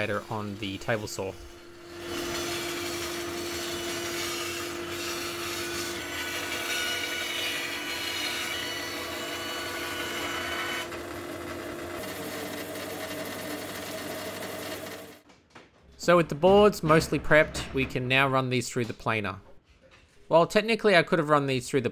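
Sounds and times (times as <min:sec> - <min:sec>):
saw blade cutting wood: 0:00.0 - 0:11.0
bandsaw motor hum: 0:00.0 - 0:15.2.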